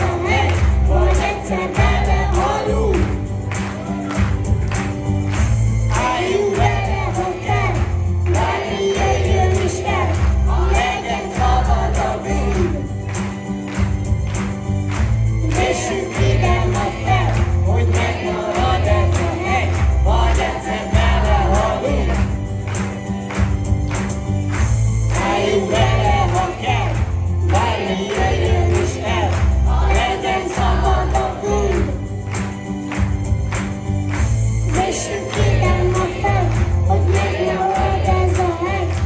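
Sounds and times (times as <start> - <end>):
choir of young voices singing: 0.0 - 3.1, 5.9 - 12.8, 15.4 - 22.2, 25.1 - 31.9, 34.7 - 39.0
instrumental accompaniment with bass: 0.0 - 39.0.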